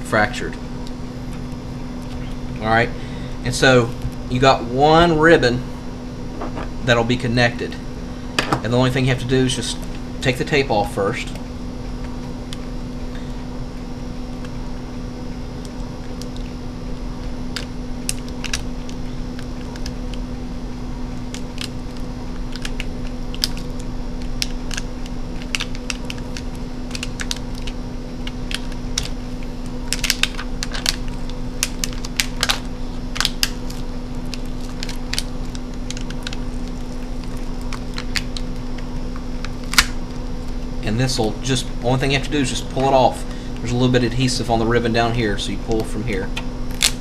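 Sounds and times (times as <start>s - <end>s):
steady low hum: 0.0s - 47.0s
fingers peeling tape crackles: 21.2s - 29.2s, 29.8s - 40.6s.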